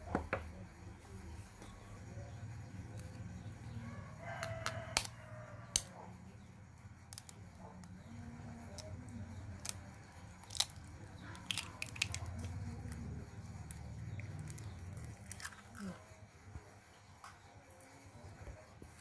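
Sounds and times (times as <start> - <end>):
eggshell cracking: 7.1 - 7.4, 9.6 - 12.6, 13.7 - 15.9.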